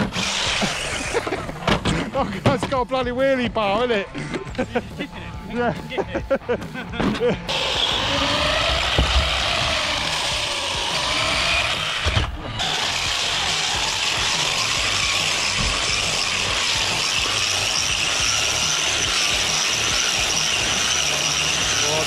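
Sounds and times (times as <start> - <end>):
toy truck motor whining: 0.0 - 1.7, 7.4 - 22.0
steady high whine: 7.5 - 22.0.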